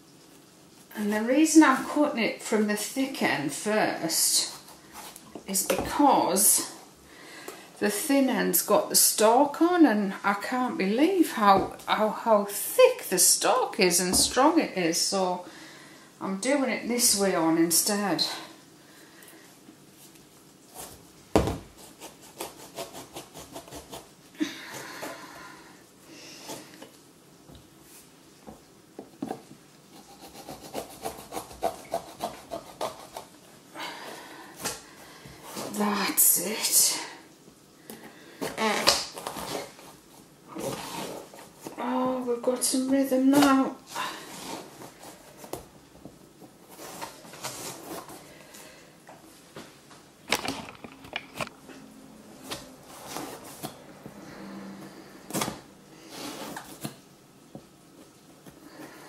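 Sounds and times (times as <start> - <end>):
knife sawing through marrow: 21.9 - 24.1, 30.0 - 33.3.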